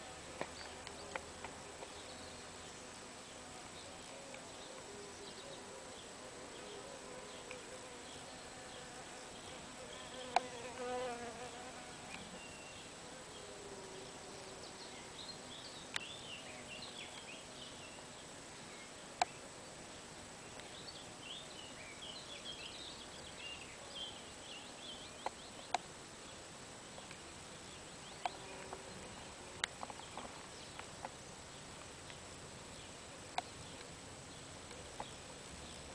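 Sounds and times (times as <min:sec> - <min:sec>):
bee buzzing in flight: 0:07.8 - 0:12.1.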